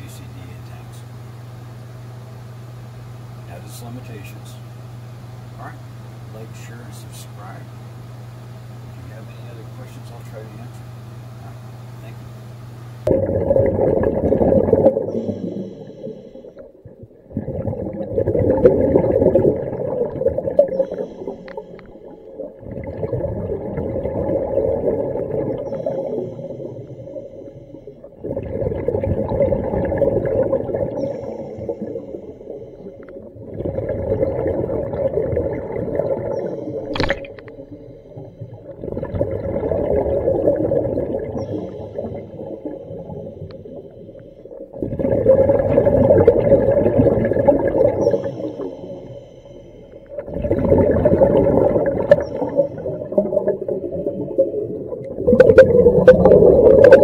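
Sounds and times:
diver breathing through regulator: 0:15.0 - 0:16.7, 0:20.7 - 0:22.5, 0:25.6 - 0:28.4, 0:30.9 - 0:33.4, 0:36.3 - 0:38.9, 0:41.3 - 0:44.7, 0:48.0 - 0:50.3.

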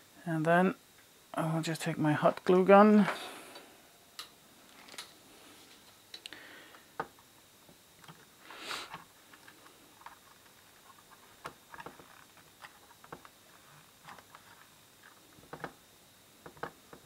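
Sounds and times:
short hiss: 0:08.4 - 0:09.0
faint clicks and taps: 0:14.0 - 0:15.8.

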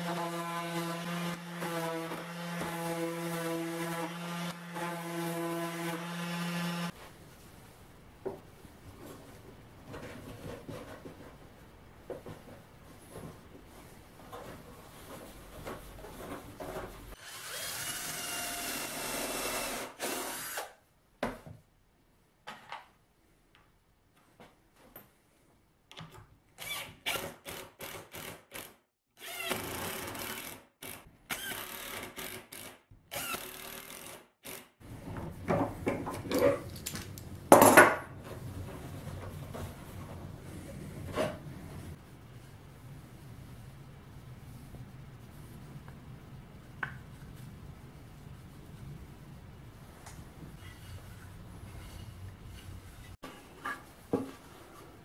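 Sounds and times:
knocks and scrapes of wood parts: 0:08.2 - 0:17.2, 0:34.9 - 0:41.9, 0:50.5 - 0:55.0.

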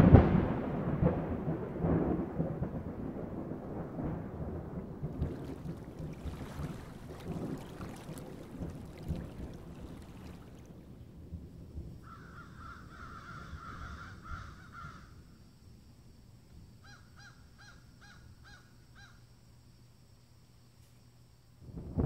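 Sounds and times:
bird raspy call: 0:12.1 - 0:15.1.

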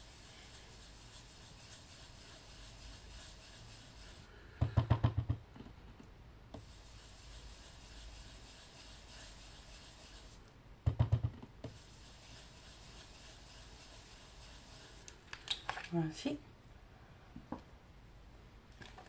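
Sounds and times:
dauber rubbing on paper: 0:00.0 - 0:04.3, 0:06.6 - 0:10.4, 0:11.7 - 0:15.1.

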